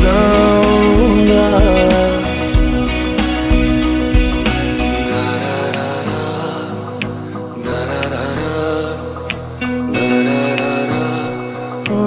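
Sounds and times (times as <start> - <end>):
drum beat: 0.0 - 5.0.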